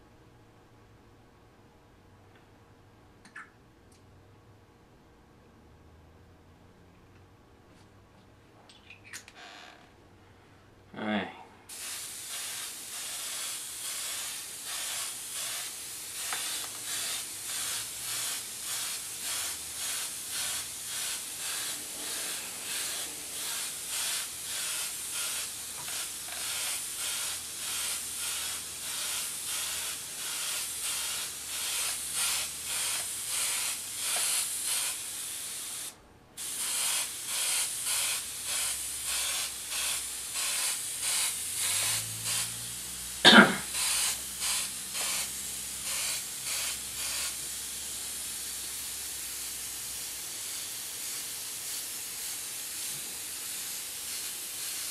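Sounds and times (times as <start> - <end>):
airbrush hissing: 11.7 - 54.9.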